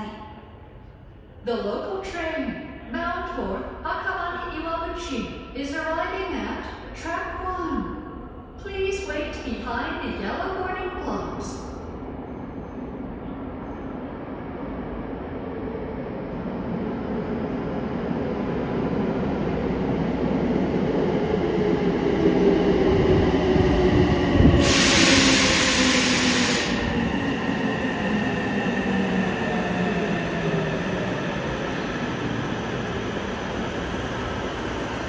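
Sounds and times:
subway train rumbling and braking: 0:00.0 - 0:35.0
loud hiss of air: 0:24.5 - 0:27.0.

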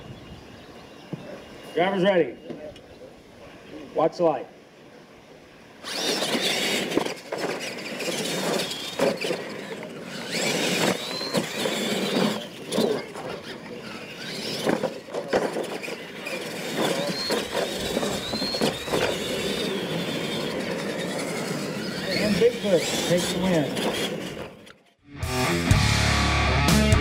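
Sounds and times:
electric motor whine: 0:05.8 - 0:24.8.

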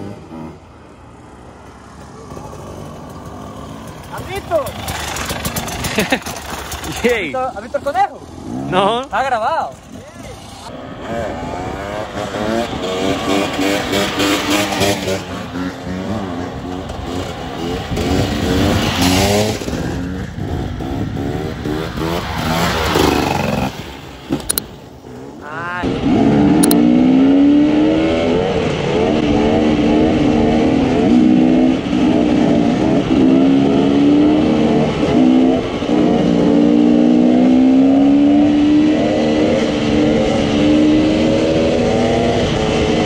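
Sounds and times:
dirt bike engines revving: 0:00.0 - 0:43.0.

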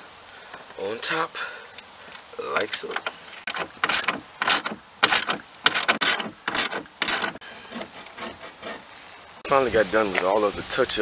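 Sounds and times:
ratchet wrench clicking: 0:03.5 - 0:07.4.

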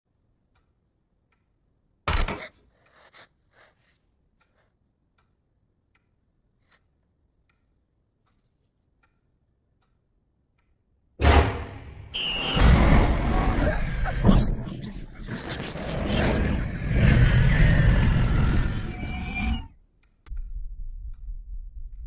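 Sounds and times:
slow faint ticking: 0:00.1 - 0:01.9, 0:04.3 - 0:10.9
sudden loud hit: 0:11.2 - 0:13.4.

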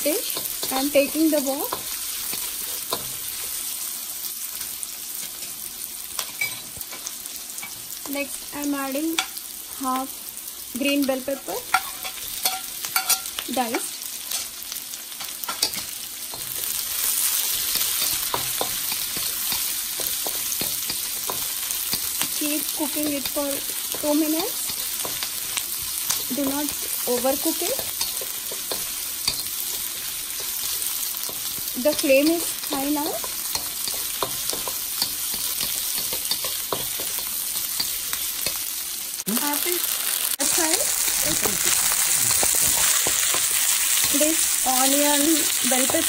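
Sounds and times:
vegetables sizzling in hot oil: 0:00.0 - 0:46.0
spatula scraping and tapping pan: 0:11.7 - 0:14.5, 0:15.2 - 0:38.7.

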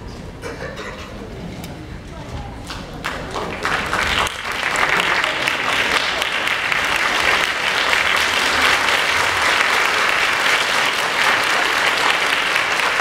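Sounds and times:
audience applauding: 0:02.7 - 0:13.0.

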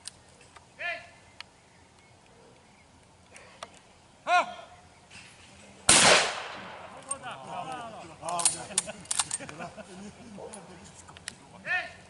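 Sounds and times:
person shouting a call: 0:00.8 - 0:01.2, 0:04.2 - 0:04.8, 0:11.6 - 0:12.0
shotgun shot with echo: 0:05.9 - 0:07.0.

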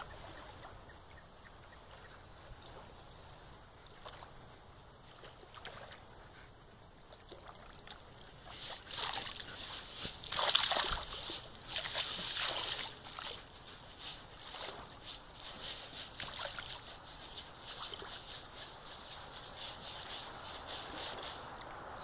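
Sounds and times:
dog digging in wet sand: 0:07.4 - 0:22.0.

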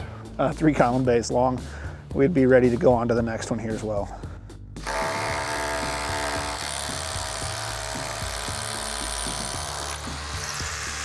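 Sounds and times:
cordless drill boring into concrete: 0:04.8 - 0:11.0.

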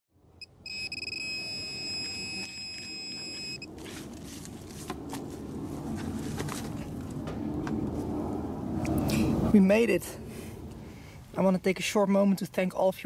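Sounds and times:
high pulsing alert tone: 0:00.4 - 0:03.7
metal detector beep: 0:00.4 - 0:03.7
hands scraping soil: 0:03.7 - 0:07.2.

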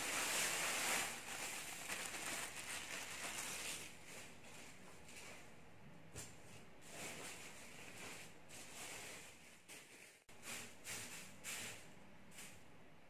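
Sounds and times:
plastic sheet crinkling: 0:00.0 - 0:04.3
dried leaves rustling: 0:00.0 - 0:04.7.

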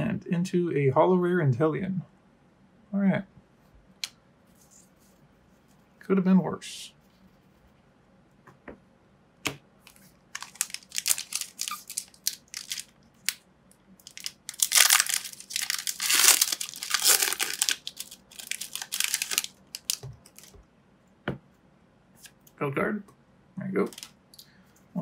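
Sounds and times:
foil wrapper crinkling and tearing: 0:09.9 - 0:13.4, 0:14.0 - 0:20.6, 0:23.8 - 0:24.1.

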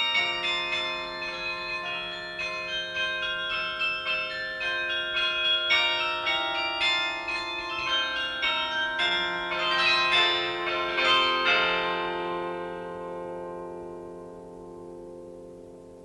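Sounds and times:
bell-like chimes music: 0:00.0 - 0:14.2.

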